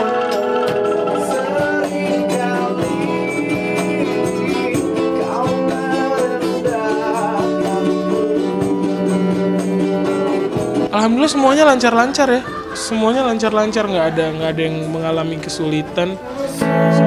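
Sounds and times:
band playing pop song: 0.0 - 17.0
person singing: 0.0 - 17.0.

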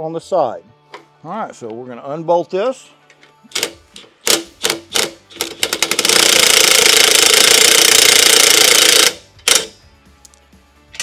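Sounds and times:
impact wrench hammering: 3.5 - 9.8.

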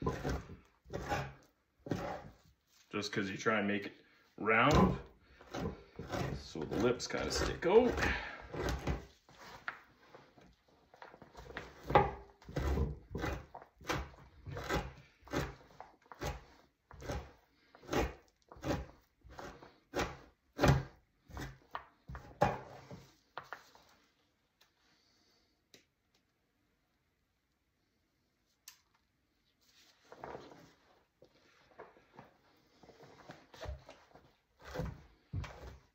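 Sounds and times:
knife scraping hide: 0.0 - 2.5, 4.7 - 10.3, 11.2 - 23.1, 32.6 - 35.9.

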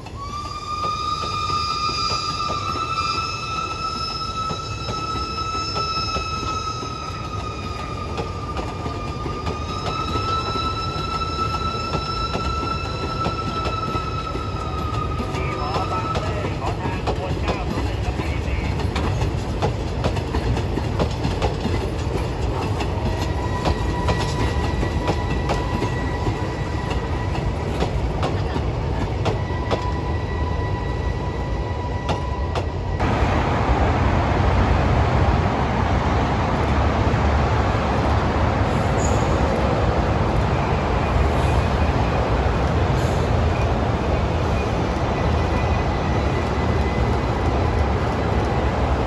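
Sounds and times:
train wheels clicking over rail joints: 0.0 - 30.2
loud steady rushing noise: 33.0 - 49.0.

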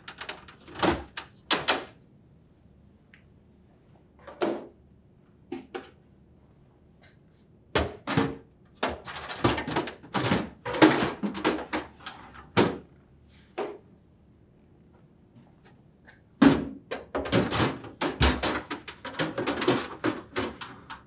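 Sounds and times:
plastic drawer knocking and clattering: 7.8 - 12.9, 16.4 - 21.0.

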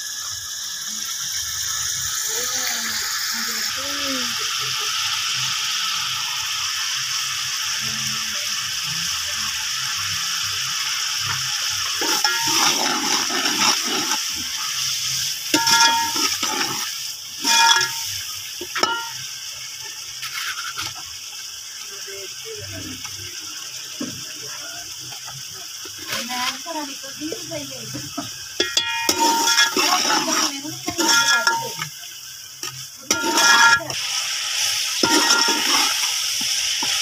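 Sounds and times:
masala sizzling in pot: 0.0 - 37.0
spoon clanking against pot: 12.0 - 12.8, 15.5 - 16.7, 17.4 - 19.2, 28.6 - 31.9, 33.1 - 34.0, 35.0 - 36.0
metal spoon scraping pot: 12.0 - 14.2, 15.6 - 16.8, 17.4 - 19.2, 20.2 - 21.0, 28.6 - 31.9, 33.0 - 34.0, 35.0 - 36.1.

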